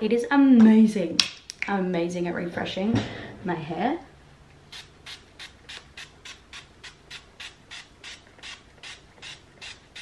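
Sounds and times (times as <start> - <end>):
spray bottle misting: 4.7 - 10.0.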